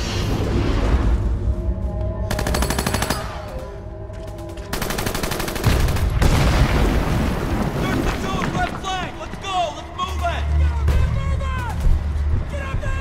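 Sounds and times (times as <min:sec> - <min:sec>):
machine-gun fire: 0:04.7 - 0:08.2.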